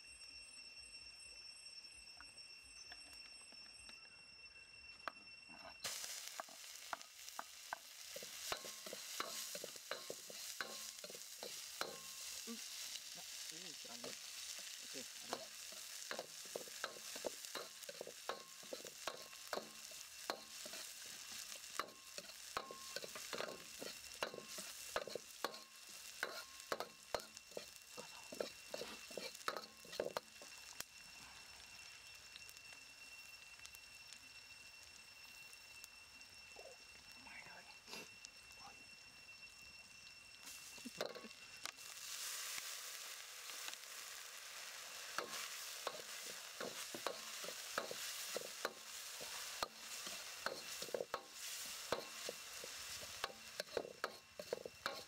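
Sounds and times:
food sizzling in hot oil: 5.8s - 37.2s, 37.8s - 55.0s
metal ladle scraping a wok: 5.9s - 30.4s, 42.0s - 55.0s.

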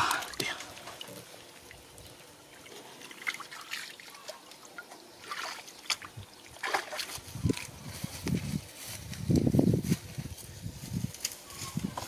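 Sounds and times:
water trickling and splashing: 0.0s - 7.7s.

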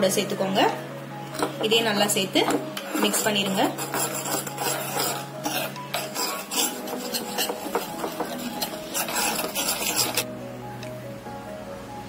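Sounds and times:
spoon scraping a pan: 2.4s - 10.3s.

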